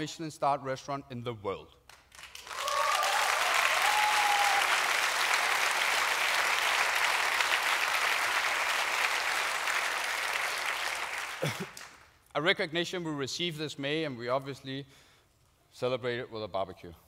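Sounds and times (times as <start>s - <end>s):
large audience applauding: 1.9s - 12.1s.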